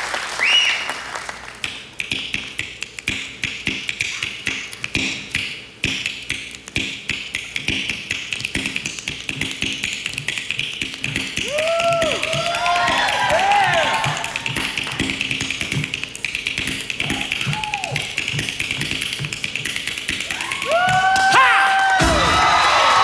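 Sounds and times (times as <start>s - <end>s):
applause: 0.0s - 1.6s
fingers snapping rapidly: 1.6s - 21.3s.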